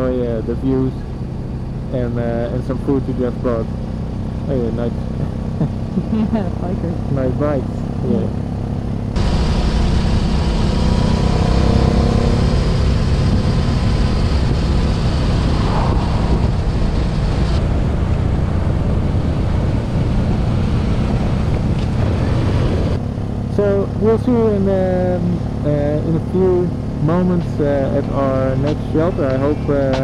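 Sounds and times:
motorcycle engine cruising: 0:00.0 - 0:30.0
wind rumble on microphone: 0:09.1 - 0:23.0.

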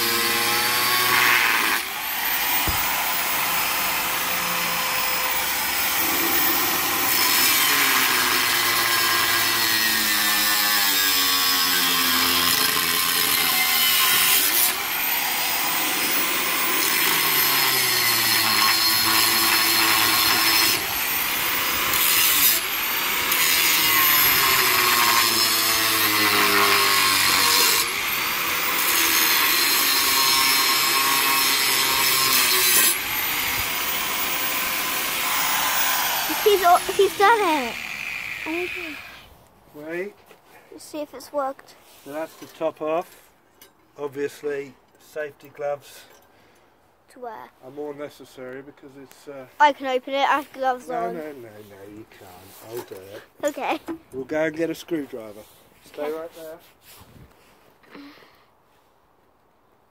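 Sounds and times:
angle grinder cutting steel: 0:00.0 - 0:39.3.

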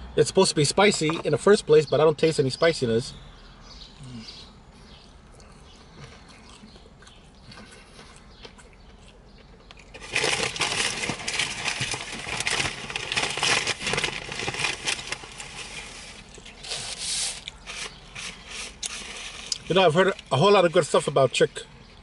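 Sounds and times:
crinkling of food being eaten: 0:05.2 - 0:22.0.

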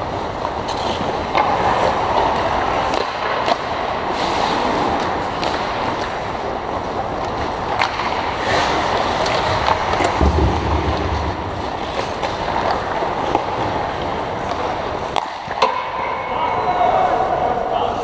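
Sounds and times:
hockey sticks and puck clacking: 0:00.0 - 0:16.9
skates hissing on ice: 0:04.1 - 0:05.2
low rumble: 0:10.2 - 0:12.3.

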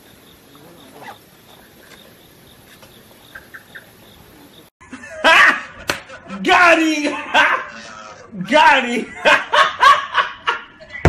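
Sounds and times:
crickets chirping: 0:00.0 - 0:04.8.

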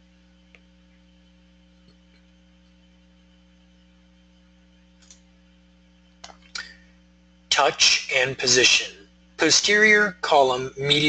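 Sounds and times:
faint electrical hum: 0:00.0 - 0:11.0
faint clicks: 0:05.0 - 0:05.3.

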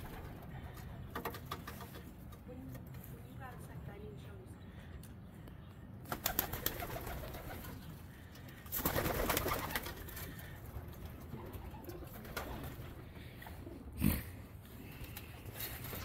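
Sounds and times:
wings flapping: 0:00.0 - 0:02.2, 0:06.0 - 0:13.1, 0:14.9 - 0:16.0
pigeon wing claps: 0:06.0 - 0:07.8, 0:08.7 - 0:10.4
pigeons cooing: 0:06.0 - 0:16.0.

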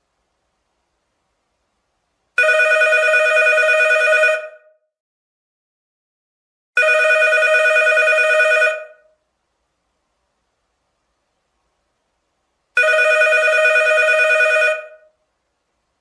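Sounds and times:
telephone ringing: 0:02.4 - 0:04.7, 0:06.8 - 0:09.1, 0:12.8 - 0:15.1.

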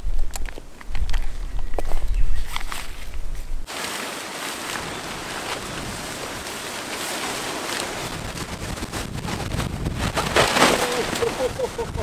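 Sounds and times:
wind gusting across microphone: 0:00.0 - 0:12.0
tent fabric flapping: 0:03.6 - 0:12.0.

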